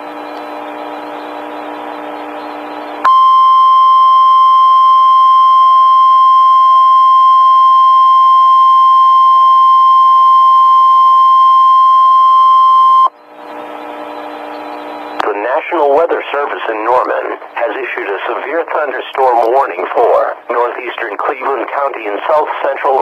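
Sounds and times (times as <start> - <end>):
steady high alarm tone: 3.0 - 15.1
faint radio hiss: 13.4 - 23.0.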